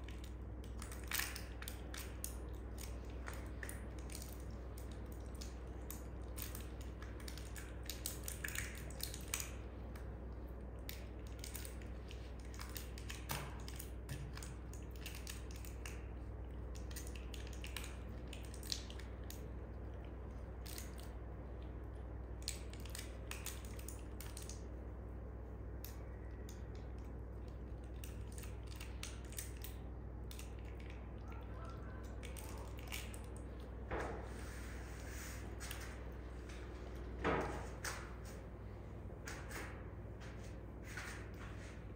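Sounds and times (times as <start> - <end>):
monkey grooming clicks and crackles: 0.0 - 24.7
steady low hum: 0.0 - 41.9.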